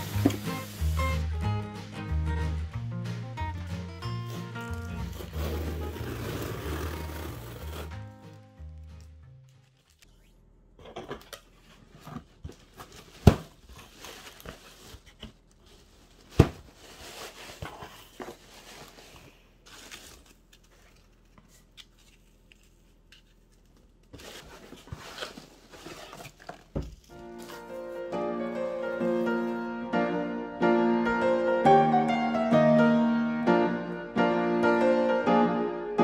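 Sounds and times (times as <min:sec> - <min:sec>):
cardboard box being opened: 0:04.2 - 0:08.4, 0:24.1 - 0:27.8
rustling packing peanuts: 0:04.2 - 0:10.0, 0:12.2 - 0:28.0.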